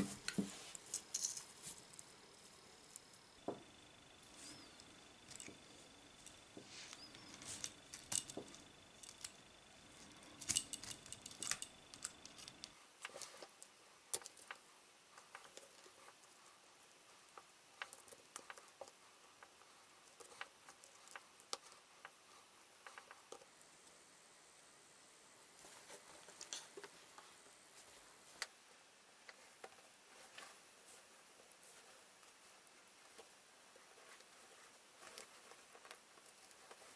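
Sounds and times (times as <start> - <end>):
chainmail rings clinking: 0.8 - 1.9.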